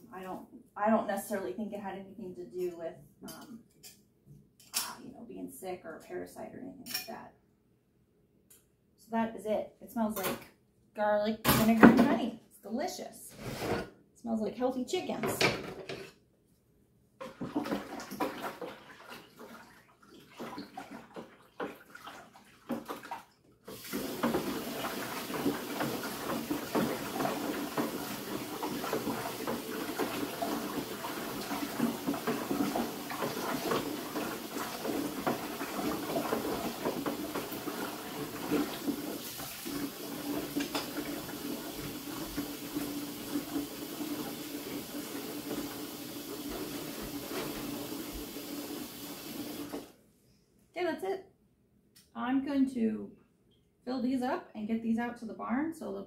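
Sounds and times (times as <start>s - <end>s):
faucet running into plastic bucket: 17.2s - 49.9s.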